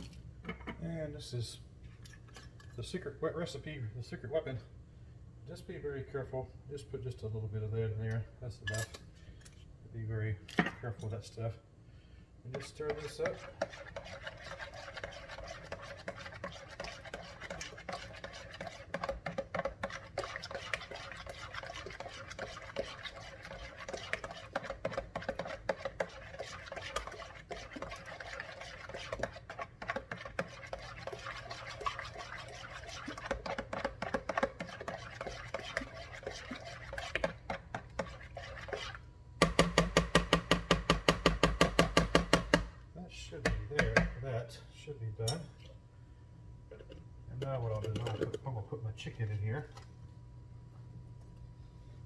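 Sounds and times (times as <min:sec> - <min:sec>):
spoon scraping and clinking pot: 0:12.5 - 0:39.0, 0:46.7 - 0:48.5.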